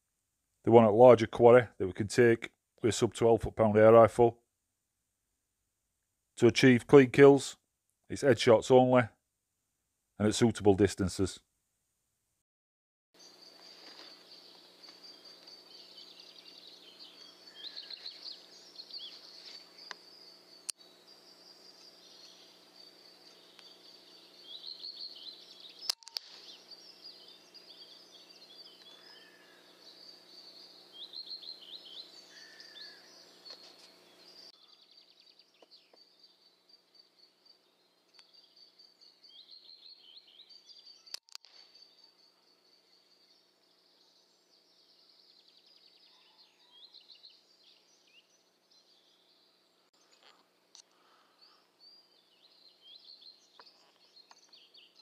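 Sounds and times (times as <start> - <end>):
small birds chirping: 13.2 - 55.0.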